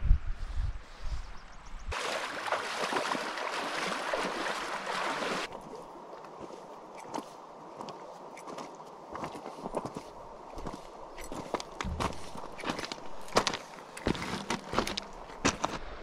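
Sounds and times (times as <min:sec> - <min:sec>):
wind rumbling on microphone: 0:00.0 - 0:02.0, 0:09.1 - 0:13.6
creek water rushing: 0:01.9 - 0:16.0.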